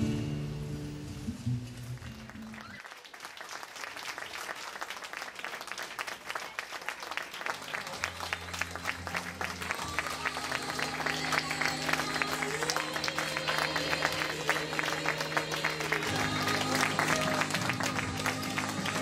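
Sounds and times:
acoustic guitar music: 0:00.0 - 0:02.5
people clapping: 0:01.8 - 0:19.0.

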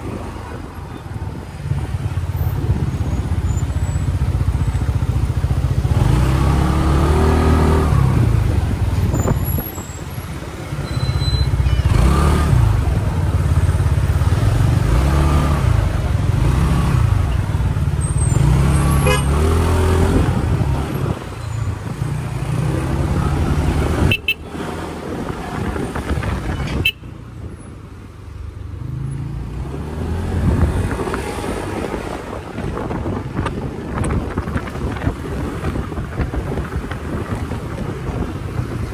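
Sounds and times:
road and wind noise: 0:00.0 - 0:38.9
scooter engine revving: 0:11.5 - 0:21.3.

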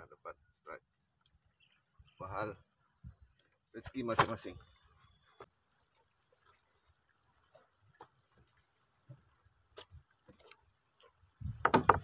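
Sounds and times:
water dripping: 0:00.9 - 0:04.0, 0:04.6 - 0:12.0
rapid loud knocks on boat: 0:11.6 - 0:12.0.

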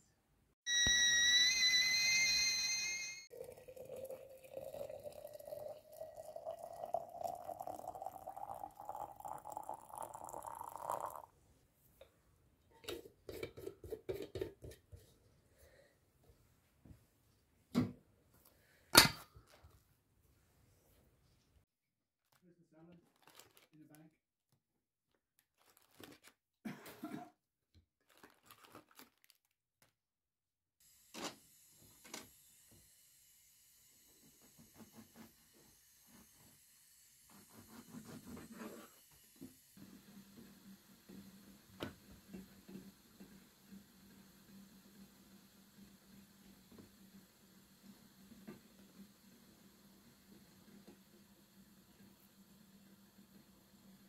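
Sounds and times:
water pouring into a flask: 0:03.3 - 0:11.3
foil sachets crinkling: 0:23.0 - 0:23.8, 0:25.4 - 0:26.3, 0:28.0 - 0:29.5.

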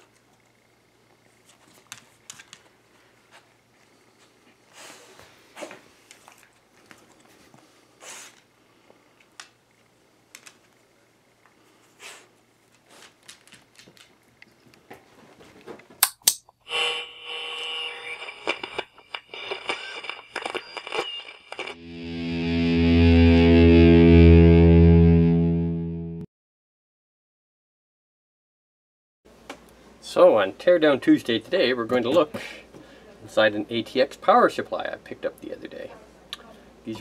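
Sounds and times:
distorted electric guitar chord: 0:21.7 - 0:26.3.

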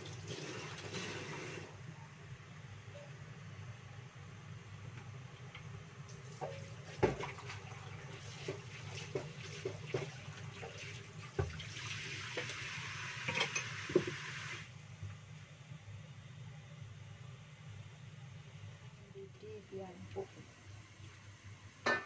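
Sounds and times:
tap water running: 0:00.0 - 0:01.8, 0:06.1 - 0:14.7.

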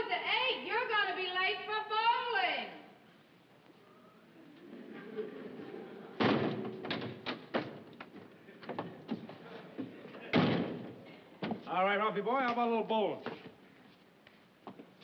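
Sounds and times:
wooden door banging open: 0:06.2 - 0:07.8, 0:10.3 - 0:11.6.

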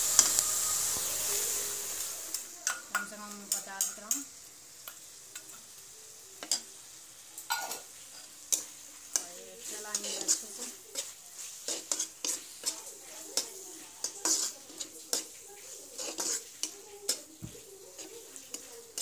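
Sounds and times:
onions sizzling in oil: 0:00.0 - 0:19.0
metal spatula scraping pan: 0:07.6 - 0:19.0.

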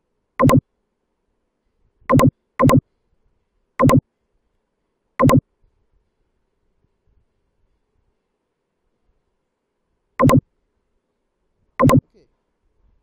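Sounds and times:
electronic click-blips: 0:00.4 - 0:00.6, 0:02.1 - 0:02.8, 0:03.8 - 0:04.0, 0:05.2 - 0:05.4, 0:10.2 - 0:10.4, 0:11.8 - 0:12.1.

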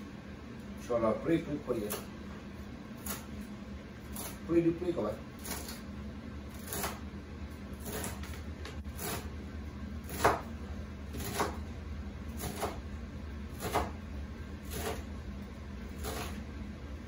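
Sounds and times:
knife chopping on cutting board: 0:06.6 - 0:07.0, 0:07.8 - 0:09.3, 0:10.0 - 0:10.5, 0:11.1 - 0:11.6, 0:12.4 - 0:12.8, 0:13.5 - 0:14.0, 0:14.6 - 0:15.1, 0:16.0 - 0:16.4.

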